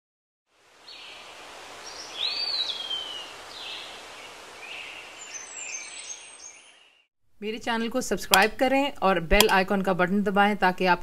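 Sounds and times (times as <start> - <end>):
bird-like chirps: 1.8 - 3.9, 4.6 - 7.1.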